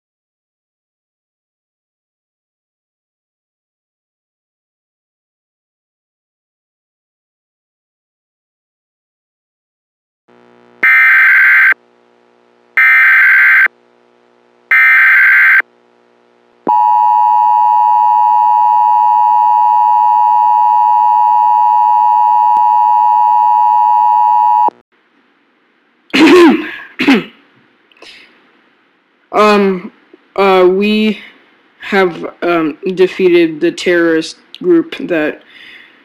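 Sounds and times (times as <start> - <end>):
screeching digital header bursts: 10.8 - 11.8, 12.8 - 13.7, 14.7 - 15.6
two-tone attention signal: 10.8 - 11.8, 14.7 - 15.6, 16.7 - 24.7.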